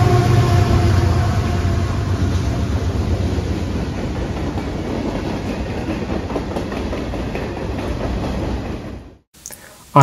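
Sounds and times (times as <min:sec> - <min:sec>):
train wheels rumbling on rail: 0:00.0 - 0:09.2
wheels clacking over rail joints: 0:02.2 - 0:09.2.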